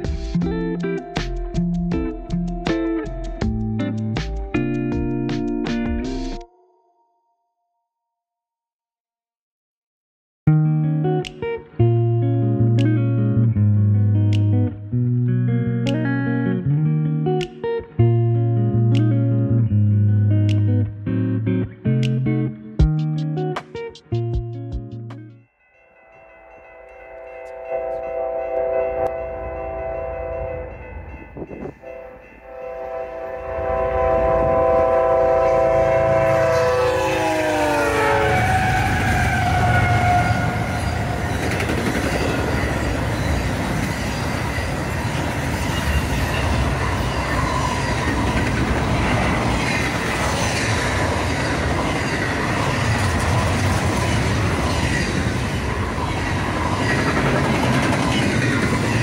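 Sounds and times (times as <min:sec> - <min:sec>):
train horn chord: 0:27.5 - 0:41.2
train wheels rushing on rail: 0:35.8 - 0:59.0.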